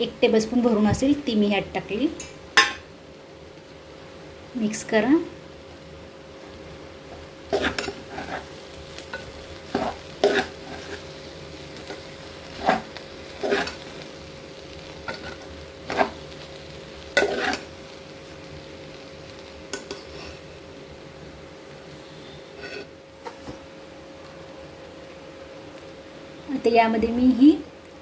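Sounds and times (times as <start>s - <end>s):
rice sauteing in a pot: 0.0s - 28.0s
spoon scraping a pot: 7.5s - 8.5s, 9.2s - 11.0s, 17.2s - 17.7s, 22.6s - 22.9s.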